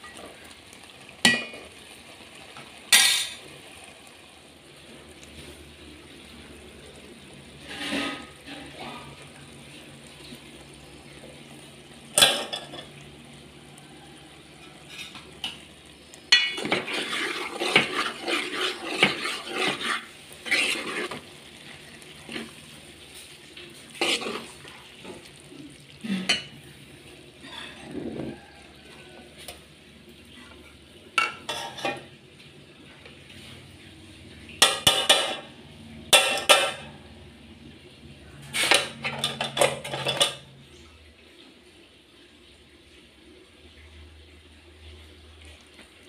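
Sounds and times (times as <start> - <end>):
spoon stirring in a metal pot: 7.6 - 9.1, 14.3 - 25.3, 31.2 - 32.1, 38.5 - 40.5.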